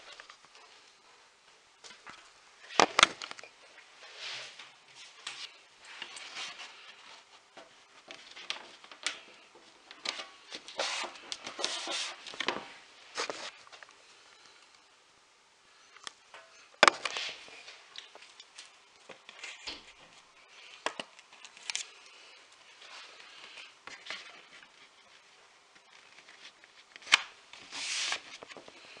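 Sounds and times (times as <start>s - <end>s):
cardstock rustling and scraping: 8.0s - 13.7s, 22.8s - 29.0s.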